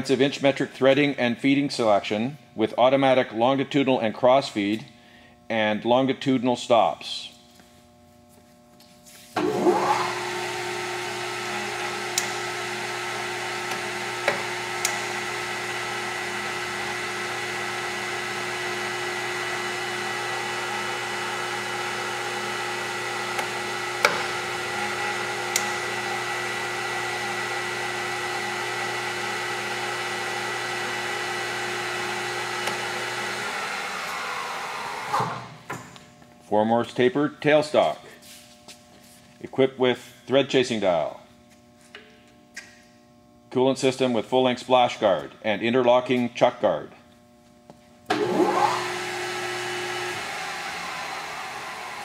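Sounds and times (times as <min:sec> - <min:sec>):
lathe motor gear whine: 0:09.4 - 0:35.5, 0:48.1 - 0:52.0.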